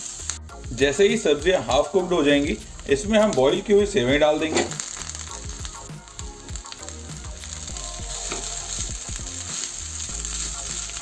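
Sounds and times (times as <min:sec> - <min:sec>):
noodles sizzling in frying pan: 0:00.0 - 0:11.0
spatula scraping pan: 0:04.4 - 0:04.9.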